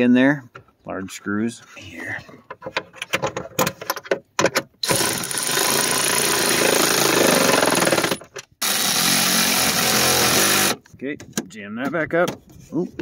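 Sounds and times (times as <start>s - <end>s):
power tool rattling: 4.8s - 10.8s.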